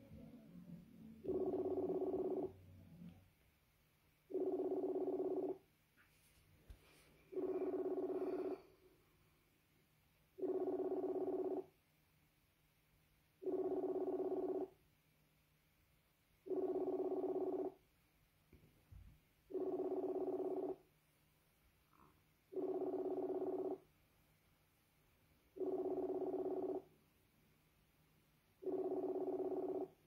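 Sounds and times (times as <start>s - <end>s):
electronic ringing tone: 1.1s - 3.1s, 4.3s - 5.7s, 7.3s - 8.7s, 10.4s - 11.7s, 13.4s - 14.8s, 16.4s - 17.8s, 19.5s - 20.9s, 21.9s - 23.9s, 25.5s - 26.9s, 28.6s - 30.0s.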